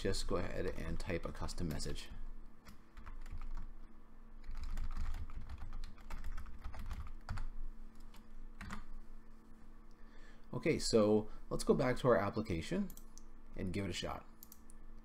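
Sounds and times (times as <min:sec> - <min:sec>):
computer keyboard typing: 0:03.0 - 0:03.7, 0:04.4 - 0:07.5, 0:08.1 - 0:08.9.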